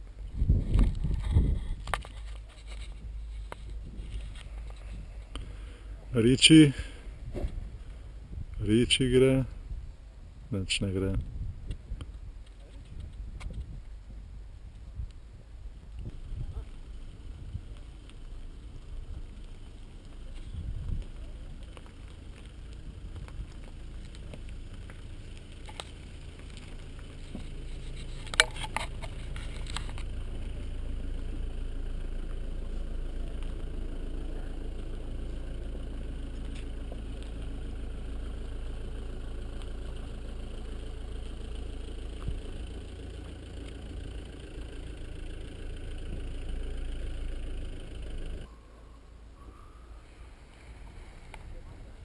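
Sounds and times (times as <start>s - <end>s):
wind buffeting microphone: 0.2s - 2.0s, 7.1s - 8.7s, 9.5s - 10.5s, 11.1s - 17.9s, 20.2s - 21.8s.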